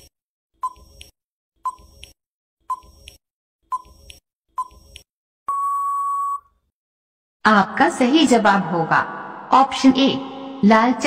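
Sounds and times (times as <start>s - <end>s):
long steady beep: 5.5s - 6.5s.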